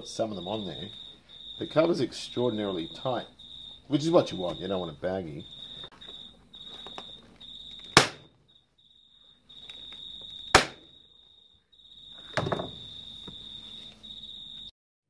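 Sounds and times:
staple gun sharp snap: 0:08.0 - 0:08.2, 0:10.6 - 0:10.8
dull knock with rustling: 0:12.4 - 0:13.4.

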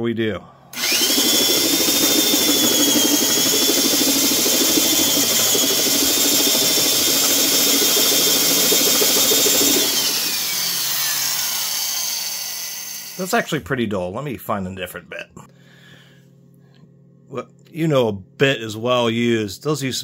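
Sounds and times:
drill boring into wood: 0:00.7 - 0:13.4
drill motor winding down: 0:00.7 - 0:13.4.

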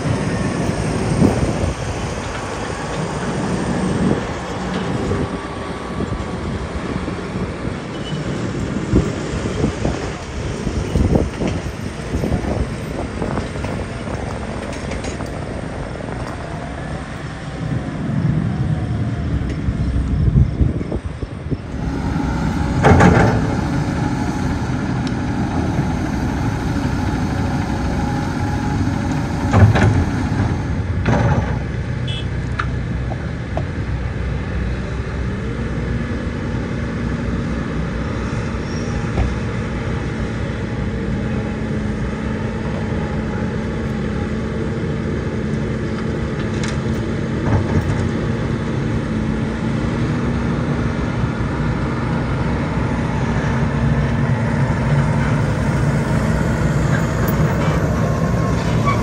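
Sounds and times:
heavy diesel machinery running: 0:00.0 - 0:59.0.

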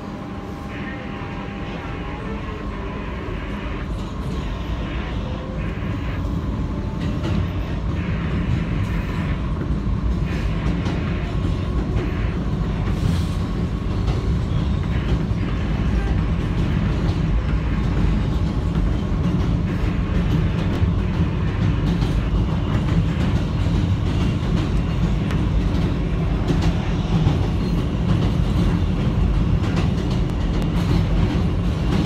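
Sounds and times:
subway train wheels rumbling on rail: 0:00.0 - 0:32.0
train wheel clatter: 0:06.9 - 0:32.0.

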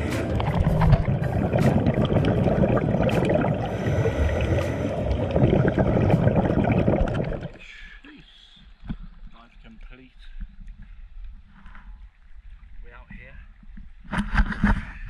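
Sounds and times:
underwater rumble and gurgle: 0:00.0 - 0:07.6.

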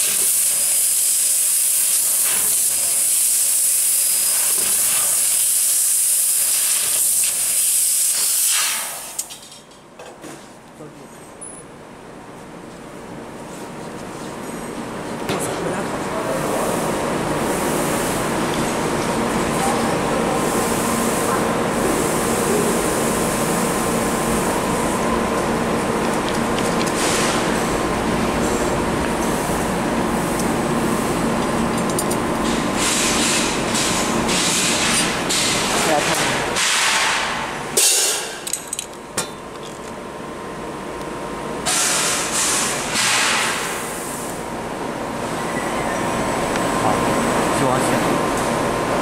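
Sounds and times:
loud hiss: 0:00.0 - 0:09.2
laser cutting machine noise: 0:00.0 - 0:09.3, 0:15.5 - 0:38.5, 0:41.6 - 0:49.0.

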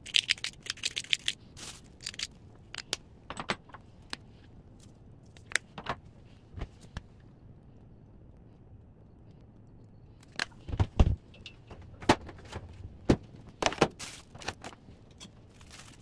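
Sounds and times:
pepper mill grinding peppercorns: 0:00.0 - 0:02.3.

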